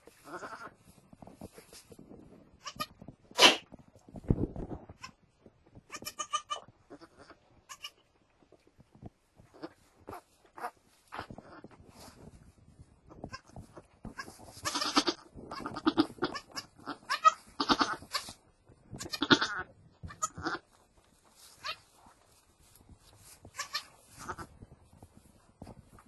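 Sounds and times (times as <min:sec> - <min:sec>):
rustling in straw bedding: 0:00.0 - 0:03.0, 0:09.4 - 0:26.0
goat bleating: 0:00.2 - 0:00.7, 0:02.6 - 0:02.9, 0:05.9 - 0:08.0, 0:14.1 - 0:18.4, 0:19.0 - 0:20.7, 0:23.5 - 0:24.5.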